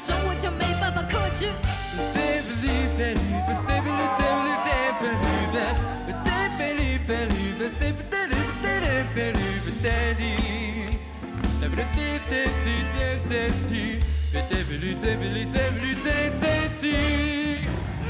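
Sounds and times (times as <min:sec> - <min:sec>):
sliding lead melody: 0:00.0 - 0:17.7
pop song with pulsing bass: 0:00.0 - 0:18.0.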